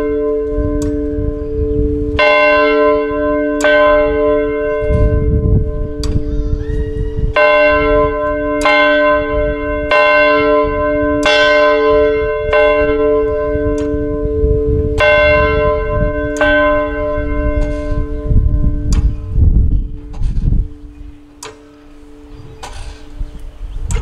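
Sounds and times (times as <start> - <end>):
large church bell ringing: 0.0 - 23.9.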